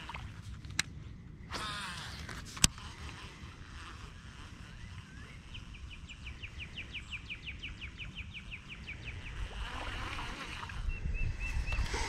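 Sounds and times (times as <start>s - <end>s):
songbird trill: 4.6s - 9.6s.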